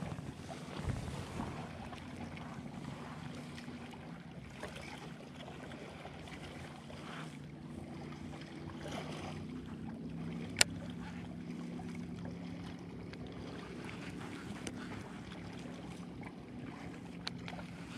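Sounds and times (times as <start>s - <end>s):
wind noise: 0.0s - 1.6s
low steady drone: 0.0s - 17.9s
water: 0.0s - 17.9s.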